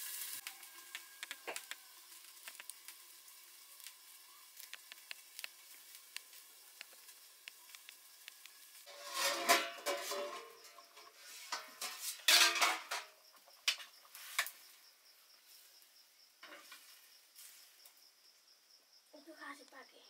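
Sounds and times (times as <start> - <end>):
metal ladle scraping wok: 8.8 - 13.1.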